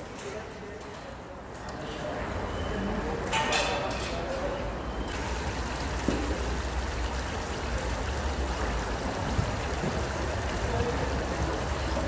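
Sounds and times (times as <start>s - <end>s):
broth boiling and bubbling: 5.1s - 12.0s.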